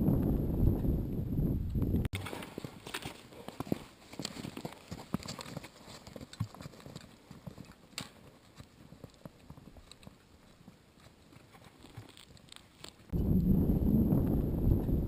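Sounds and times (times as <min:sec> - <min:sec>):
trekking poles clicking: 0:02.2 - 0:08.6.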